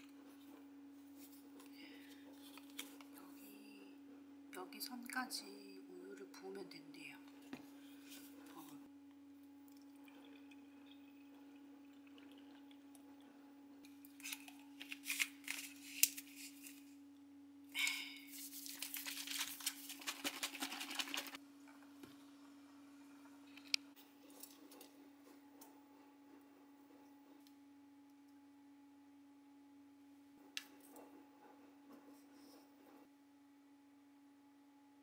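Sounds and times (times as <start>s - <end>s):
batter sloshing in shaken bottle: 18.3s - 21.4s.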